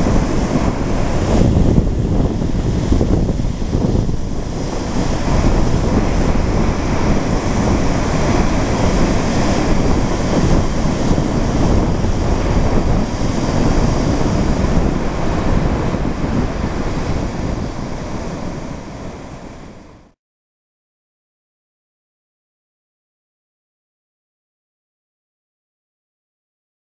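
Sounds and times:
wind buffeting microphone: 0.0s - 20.1s
sea surf breaking: 0.0s - 20.2s.

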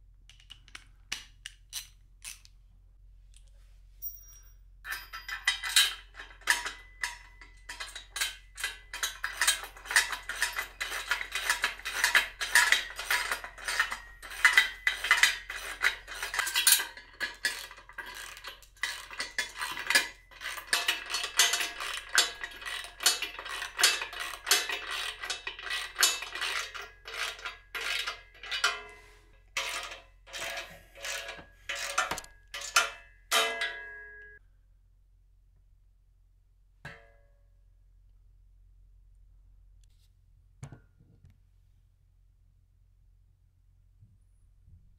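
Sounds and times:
metallic clinks: 4.0s - 8.6s.

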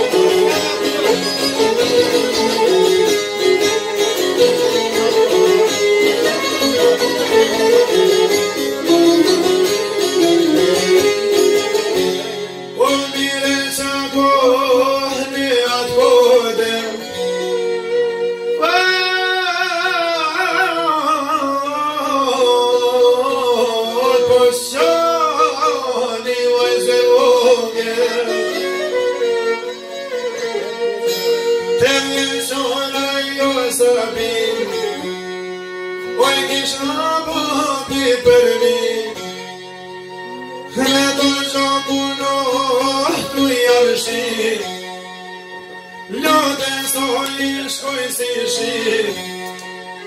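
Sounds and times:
plucked lutes: 0.0s - 50.0s
violin: 0.0s - 50.0s
man singing: 12.8s - 17.5s, 18.6s - 29.3s, 31.7s - 35.3s, 36.0s - 39.6s, 40.5s - 45.0s, 46.1s - 49.7s.

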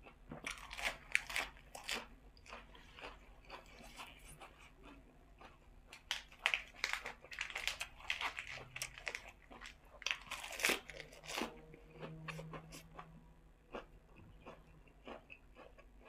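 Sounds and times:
chewing: 0.0s - 16.0s
lettuce tearing and crunching: 0.4s - 4.4s, 5.9s - 11.6s.

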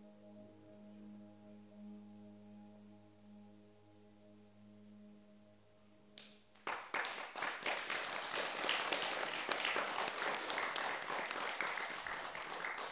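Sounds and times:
audience applauding: 6.6s - 12.9s.

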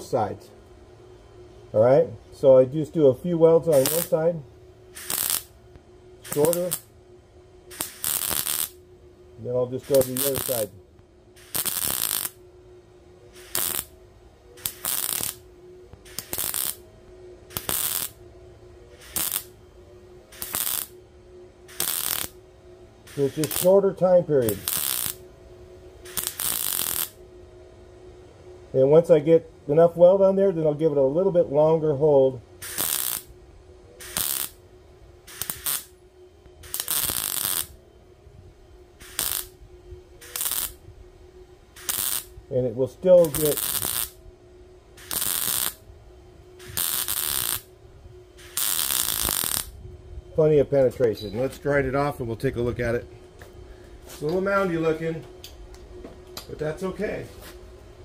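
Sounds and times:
faint steady hum: 0.0s - 58.0s
welder arc crackling: 2.4s - 6.9s, 7.7s - 12.5s, 13.2s - 18.2s, 18.8s - 22.4s, 23.0s - 27.2s, 31.7s - 33.4s, 34.0s - 37.8s, 38.8s - 44.2s, 44.9s - 45.9s, 46.5s - 47.8s, 48.4s - 49.8s.

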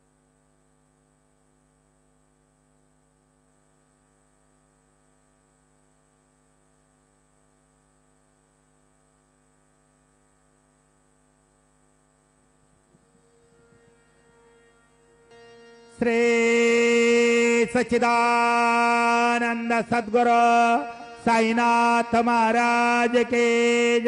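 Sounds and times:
faint electrical hum: 0.0s - 24.0s.

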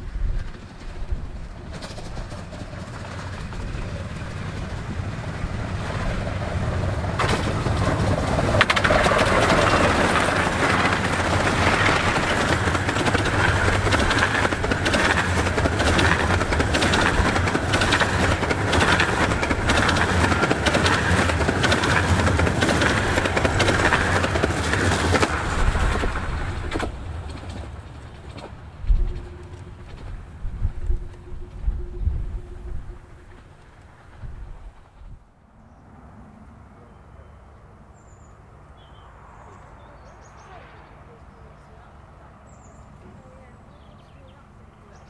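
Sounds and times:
wheels clattering over track: 0.0s - 31.7s
steam train running past: 0.0s - 45.0s.

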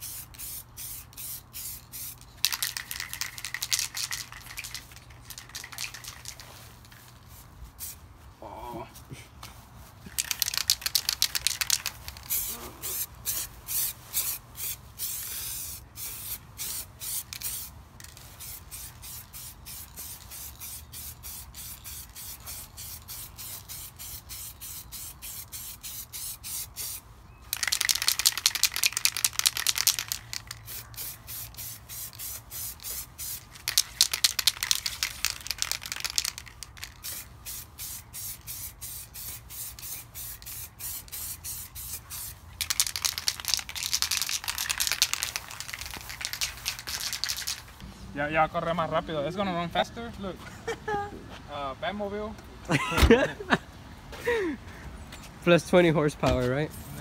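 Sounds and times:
spray paint can hissing: 0.0s - 8.0s, 10.1s - 47.8s.

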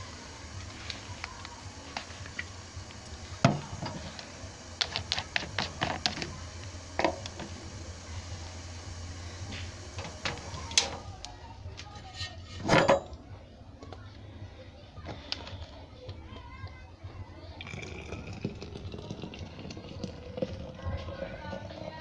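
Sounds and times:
dishes clattering: 12.0s - 13.2s
dishes clinking in washing: 12.0s - 13.2s.

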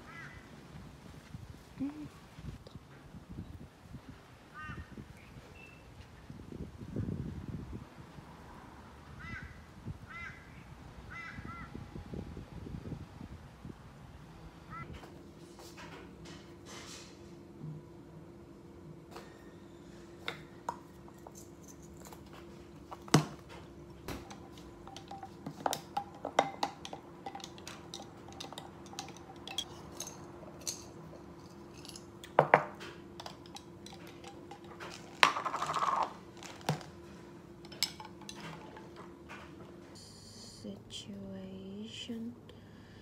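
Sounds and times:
faint steady hum: 0.0s - 43.0s
ice and straw knocking glass: 24.1s - 30.9s, 31.7s - 36.9s, 37.7s - 38.9s
jar lids and caps clicking: 24.1s - 36.9s, 37.6s - 38.9s.

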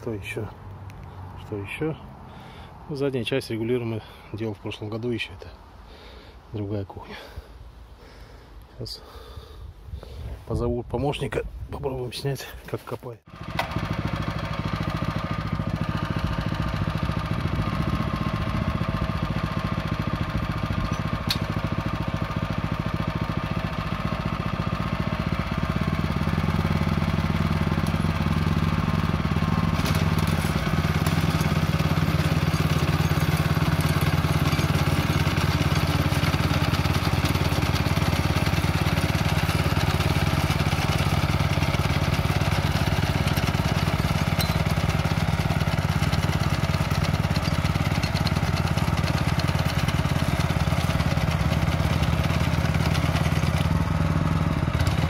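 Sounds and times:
petrol engine running under load: 13.3s - 55.0s.

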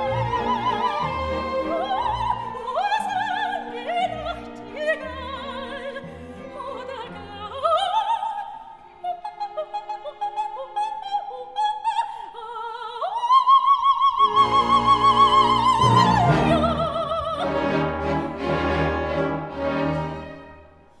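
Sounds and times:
orchestral accompaniment: 0.0s - 7.5s, 14.2s - 20.9s.

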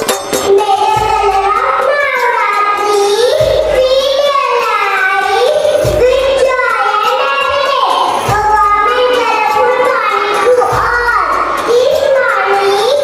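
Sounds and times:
girl singing into a microphone: 0.5s - 13.0s.

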